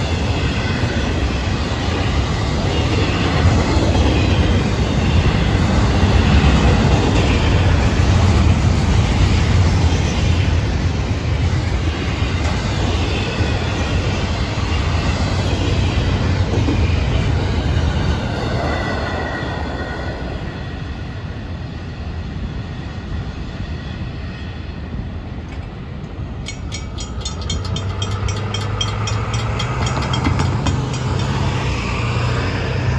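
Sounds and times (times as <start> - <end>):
freight train wheels clacking: 25.5 - 32.5
railroad crossing bell ringing: 26.4 - 32.0.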